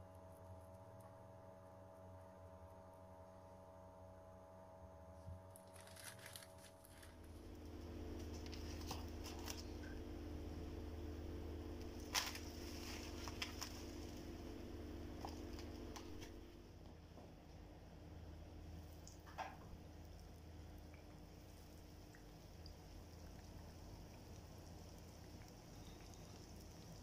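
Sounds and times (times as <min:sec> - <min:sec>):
low steady hum: 0:00.0 - 0:27.0
cling film crinkling: 0:05.5 - 0:07.5, 0:08.2 - 0:10.0, 0:11.8 - 0:16.5.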